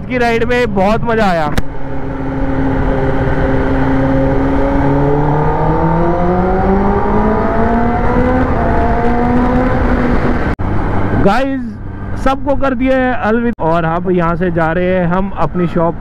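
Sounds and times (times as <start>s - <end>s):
motorcycle engine accelerating: 0.3s - 12.3s
wind rush on microphone: 1.6s - 12.2s.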